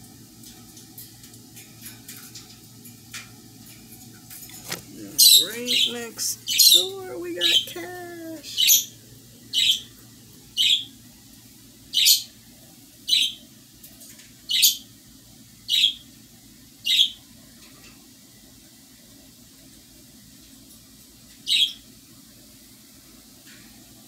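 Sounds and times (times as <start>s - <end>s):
bird chirping: 5.1s - 9.9s, 10.6s - 10.9s, 11.9s - 12.3s, 13.1s - 13.4s, 14.5s - 14.8s, 15.7s - 16.0s, 16.8s - 17.2s, 21.5s - 21.8s.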